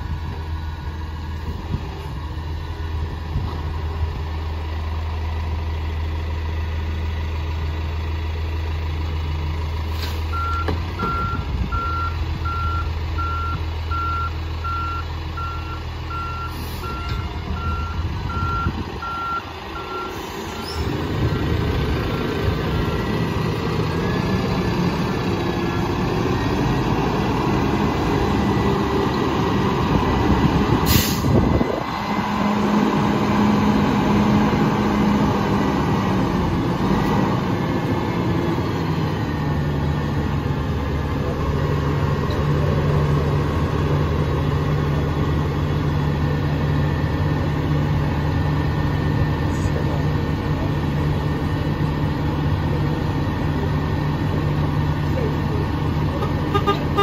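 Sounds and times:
garbage truck engine humming: 0:00.0 - 0:57.0
reversing alarm beeping: 0:10.3 - 0:21.7, 0:22.5 - 0:24.4.

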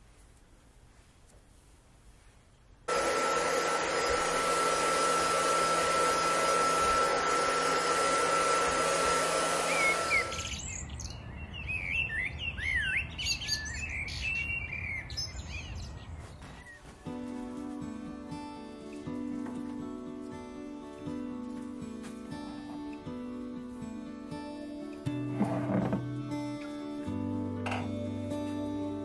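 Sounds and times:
hair dryer blowing: 0:02.9 - 0:10.7
birds chirping: 0:09.5 - 0:17.3.

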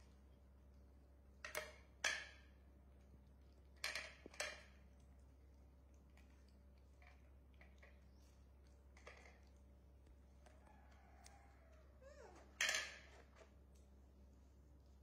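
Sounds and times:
corn cobs clicking on ceramic plates: 0:03.7 - 0:04.9.

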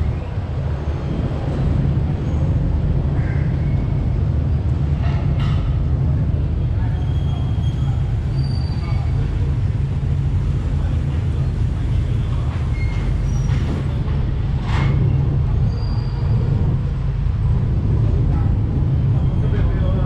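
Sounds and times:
ferry engines rumbling: 0:00.0 - 0:20.0
faint passenger chatter: 0:05.0 - 0:20.0.

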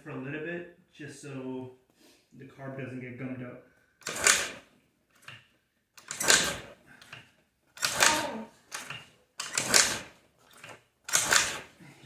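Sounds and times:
scooter kickstart engine turning over: 0:04.0 - 0:04.6, 0:06.0 - 0:06.7, 0:07.8 - 0:11.8.

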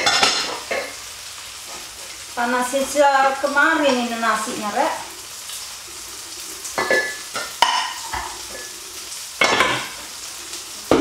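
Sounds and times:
pots and utensils clattering: 0:00.0 - 0:02.2, 0:06.6 - 0:10.2, 0:10.8 - 0:11.0
tofu sizzling in oil: 0:00.0 - 0:11.0.

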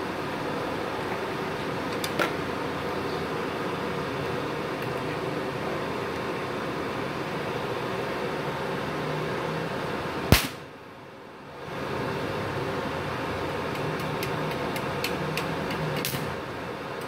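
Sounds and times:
cooling fans whirring: 0:00.0 - 0:17.0
sharp loud click: 0:10.3 - 0:10.6.

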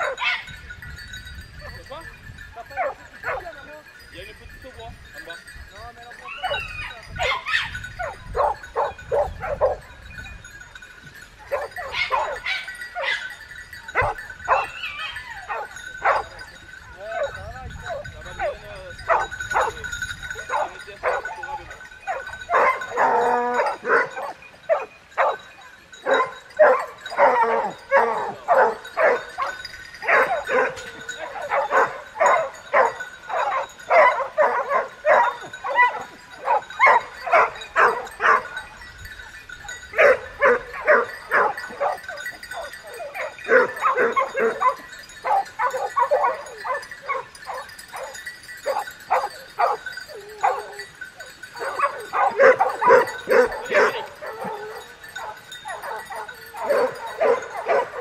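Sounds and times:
hounds barking and yelping: 0:00.0 - 0:01.1, 0:02.6 - 0:03.7, 0:06.2 - 0:58.0
dog baying: 0:22.1 - 0:25.4, 0:26.1 - 0:38.6, 0:39.9 - 0:58.0.

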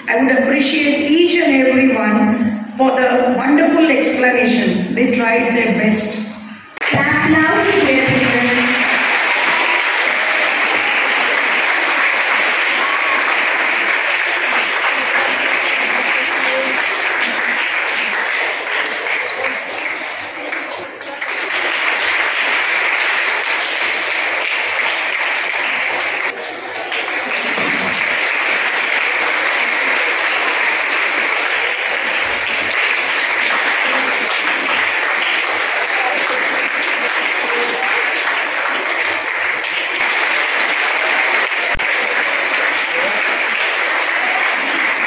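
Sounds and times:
audience applauding: 0:06.8 - 0:45.0.

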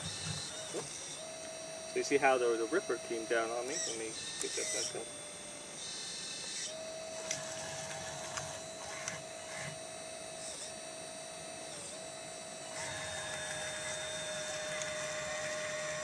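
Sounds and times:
electric motors whining: 0:00.0 - 0:16.0
small clicks and knocks: 0:13.2 - 0:15.9.

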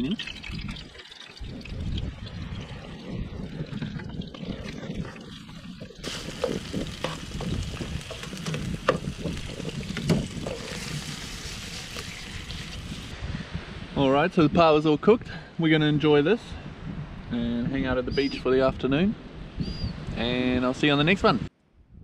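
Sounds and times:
fish sizzling in a frying pan: 0:06.0 - 0:13.1.

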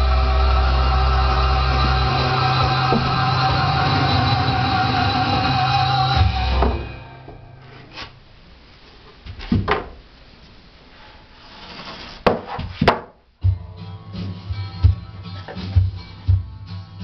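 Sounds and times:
wooden slats knocking: 0:12.2 - 0:13.2.

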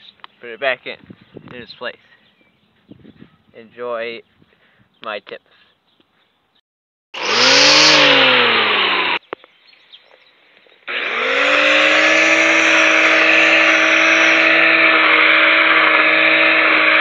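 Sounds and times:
electric string trimmer whining: 0:07.2 - 0:09.2, 0:10.9 - 0:17.0.

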